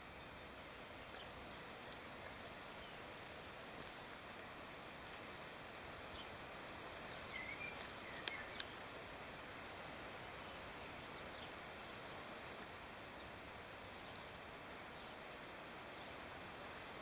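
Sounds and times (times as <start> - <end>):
steady hiss: 0.0 - 17.0
faint chirp: 6.0 - 8.8.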